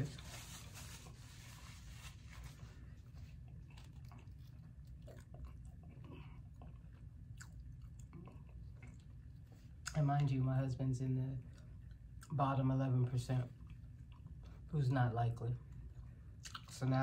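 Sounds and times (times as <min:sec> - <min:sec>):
low steady hum: 0:00.0 - 0:17.0
person chewing: 0:02.7 - 0:10.1, 0:13.5 - 0:14.7, 0:15.7 - 0:16.8.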